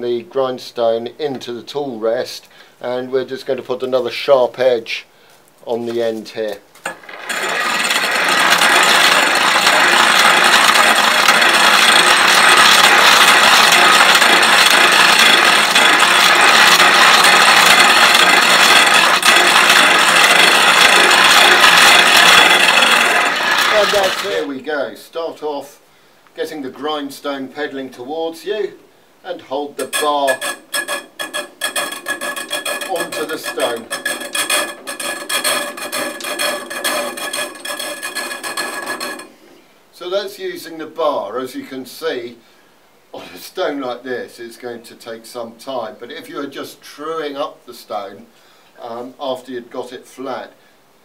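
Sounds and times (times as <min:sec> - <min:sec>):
metal bar grinding on wheel: 0:06.4 - 0:24.5, 0:29.5 - 0:39.4
grinder gears whirring: 0:06.8 - 0:24.5, 0:29.8 - 0:39.4.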